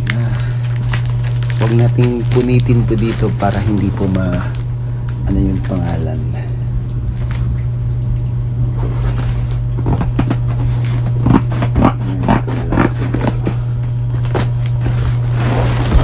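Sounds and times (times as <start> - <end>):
steady low hum: 0.0 - 16.0
crackling rustles of cardboard: 0.2 - 4.6, 14.1 - 16.0.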